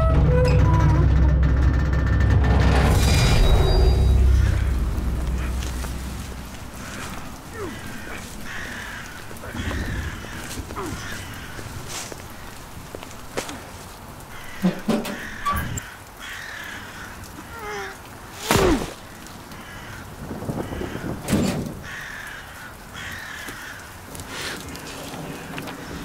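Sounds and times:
loud thumps: 0:00.0 - 0:07.4
crows cawing: 0:04.1 - 0:26.0.

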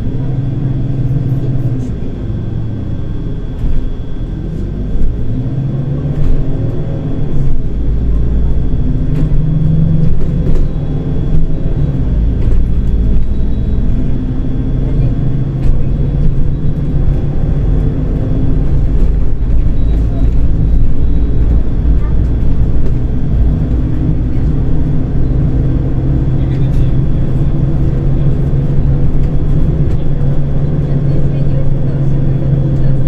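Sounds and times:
bus engine and road rumble: 0:00.0 - 0:33.0.

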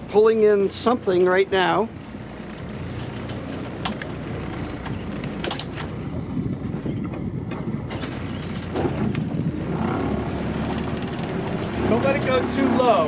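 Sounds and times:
boat engine rumble: 0:00.0 - 0:13.0
sea noise: 0:00.0 - 0:13.0
wind: 0:00.0 - 0:13.0
sharp clicks: 0:02.2 - 0:06.2.

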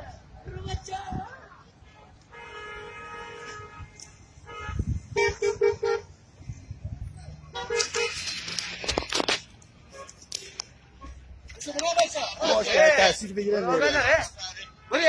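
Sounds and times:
vehicle horns honking: 0:01.8 - 0:06.2, 0:07.5 - 0:08.6, 0:09.8 - 0:10.3, 0:13.7 - 0:15.0.

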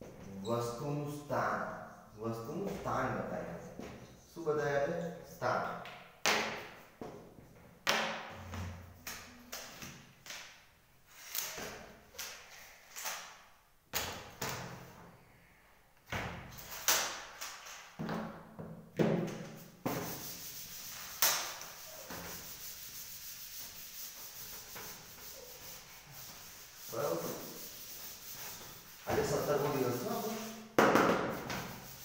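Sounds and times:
duster rubbing on chalkboard: 0:19.4 - 0:32.0
board knocking and scraping: 0:30.8 - 0:31.8.

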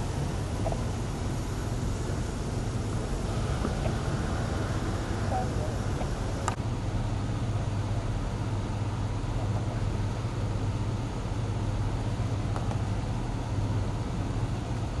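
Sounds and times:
background hiss: 0:00.0 - 0:06.6
engine idling: 0:00.0 - 0:15.0.

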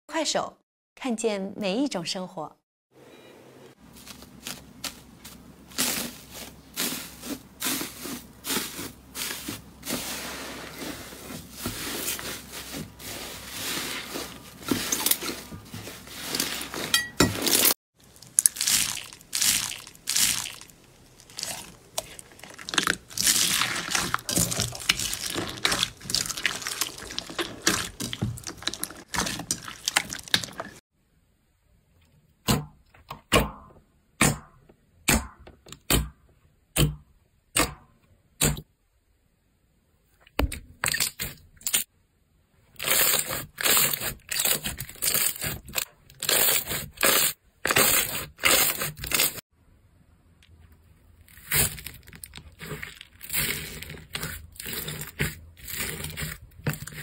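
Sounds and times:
foil slime crackling: 0:03.9 - 0:16.9, 0:17.5 - 0:30.8, 0:42.8 - 0:49.4, 0:51.2 - 0:57.0
bead slime crunching: 0:04.0 - 0:16.8, 0:17.5 - 0:30.8, 0:51.2 - 0:57.0
wet slime squishes: 0:17.5 - 0:30.8, 0:51.2 - 0:57.0.

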